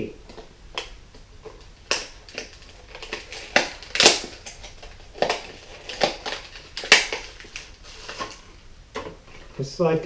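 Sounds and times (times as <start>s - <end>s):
plastic packaging crackling: 0.2s - 9.8s.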